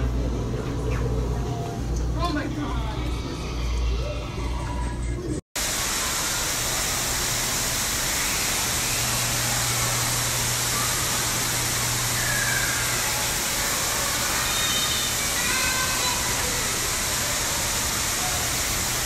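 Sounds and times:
steady rushing hiss: 5.6 - 19.0.

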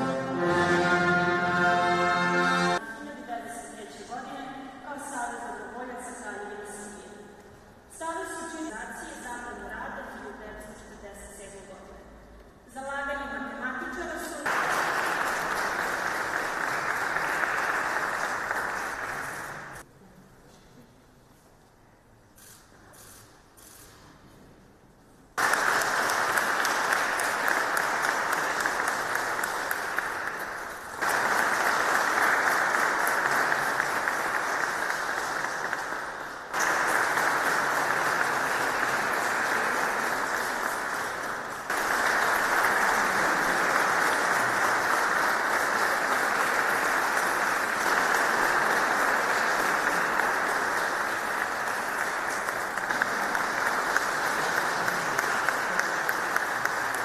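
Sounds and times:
audience applauding: 14.4 - 19.8, 25.4 - 57.0.

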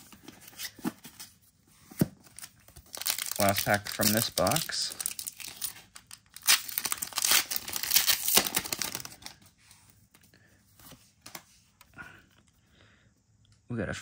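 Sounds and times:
foil wrapper tearing and crinkling: 2.4 - 9.4.

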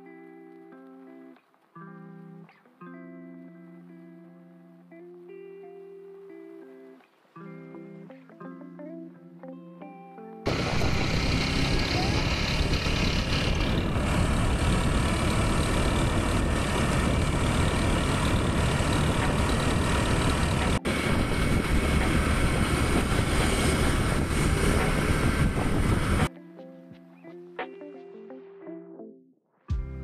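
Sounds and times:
motorcycle engine: 10.5 - 26.3
wind rushing over microphone: 10.5 - 26.3.

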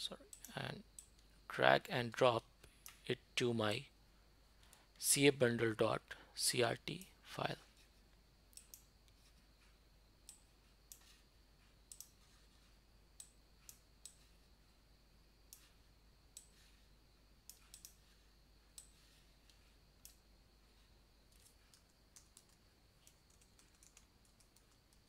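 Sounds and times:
computer mouse clicks: 0.3 - 1.3, 8.5 - 9.3, 10.2 - 11.1, 11.9 - 12.2, 13.2 - 14.3, 15.5 - 16.6, 17.4 - 18.0, 18.7 - 20.2, 21.3 - 25.0.

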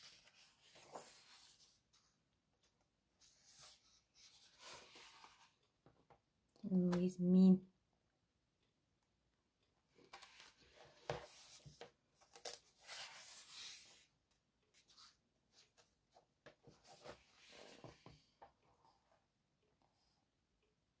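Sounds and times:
paper page rustling: 0.0 - 2.1.

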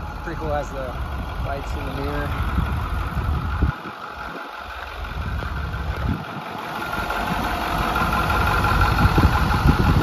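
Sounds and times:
diesel truck engine idling: 0.0 - 10.0.

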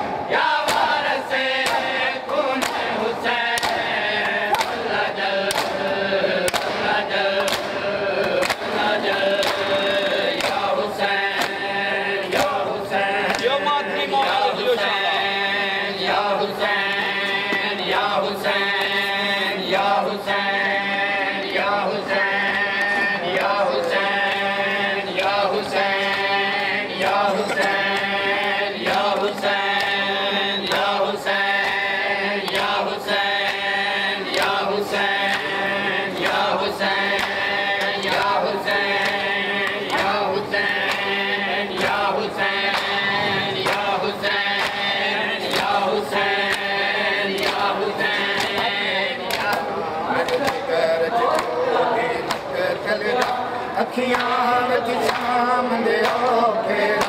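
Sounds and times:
men chanting in unison: 0.0 - 57.0
chest-beating slaps: 1.6 - 2.0, 2.6 - 2.9, 3.5 - 5.8, 6.5 - 8.8.

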